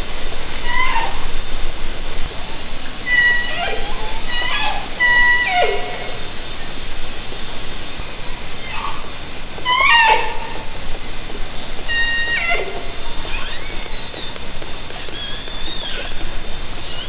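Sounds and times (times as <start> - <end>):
water noise hiss: 0.0 - 17.0
whale calls underwater: 0.6 - 1.5, 3.0 - 6.3, 8.6 - 10.8, 11.8 - 13.8.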